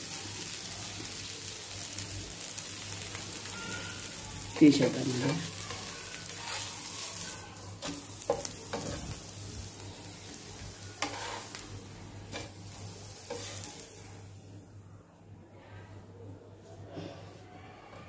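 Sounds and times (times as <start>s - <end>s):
hot griddle sizzling: 0.0s - 14.7s
spatula scraping: 5.4s - 9.3s, 10.8s - 11.7s, 12.3s - 13.9s.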